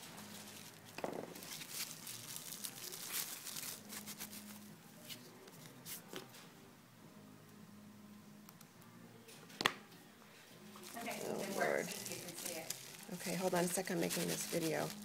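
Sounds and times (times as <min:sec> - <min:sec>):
rustling and clicking handling noise: 0:00.0 - 0:06.5.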